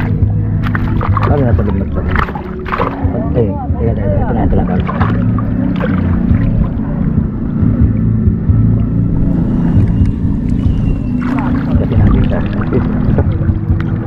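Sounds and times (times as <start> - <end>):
water splashing and knocking: 0.0 - 3.4, 4.3 - 6.9, 9.8 - 14.0
small boat engine droning: 0.0 - 14.0.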